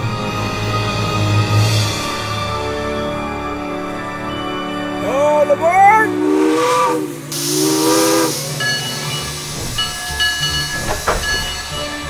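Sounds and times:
steam locomotive chime whistle: 3.5 - 12.0
steam hissing: 6.1 - 12.0.

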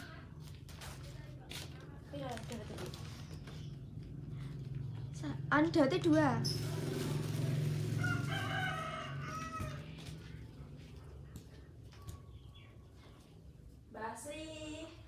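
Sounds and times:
low steady hum: 0.0 - 15.0
rooster crowing: 7.8 - 10.2.

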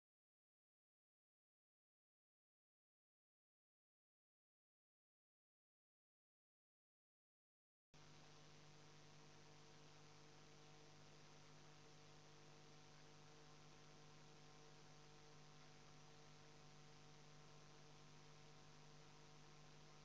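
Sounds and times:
faint electrical hum: 8.0 - 20.0.

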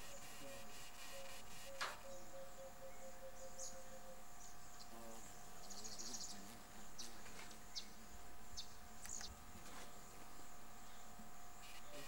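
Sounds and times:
bird trill: 0.0 - 4.9
birds chirping: 0.0 - 12.0
insects humming: 0.0 - 12.0.

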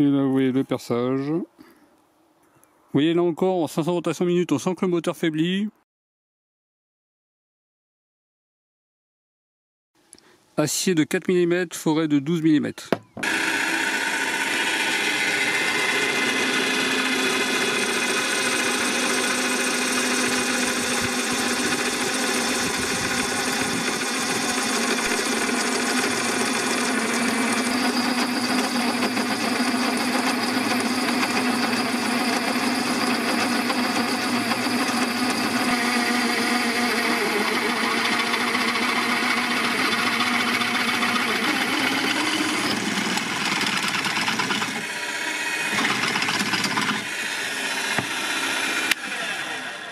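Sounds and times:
pillar drill motor running: 12.9 - 49.9
drill bit cutting steel: 13.2 - 49.9.

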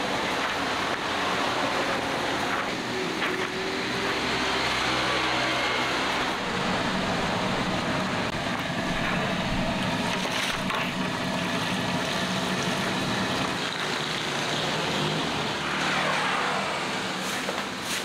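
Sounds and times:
machine running with low hum: 2.4 - 13.9.

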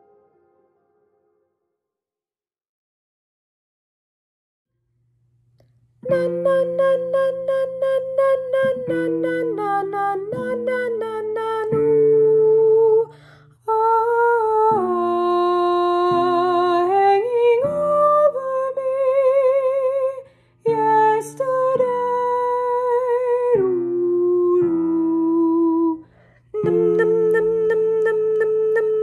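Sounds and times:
woman singing with vibrato: 6.0 - 13.1, 13.7 - 26.0, 26.6 - 29.0.

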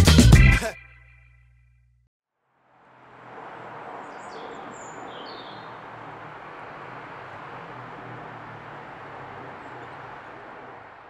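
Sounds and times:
high bird chirps: 4.0 - 6.1.

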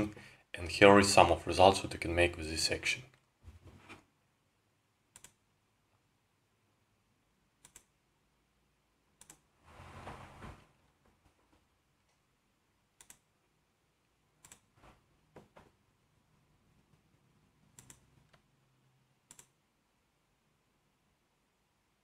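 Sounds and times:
computer mouse clicks: 5.1 - 5.4, 7.6 - 8.0, 9.2 - 9.5, 13.0 - 13.3, 14.4 - 14.8, 17.7 - 18.5, 19.2 - 19.6.

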